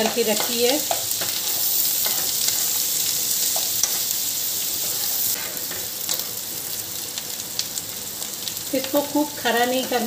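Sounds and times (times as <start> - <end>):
spoon scraping pan: 0.0 - 4.1
onions sizzling in pan: 0.0 - 10.0.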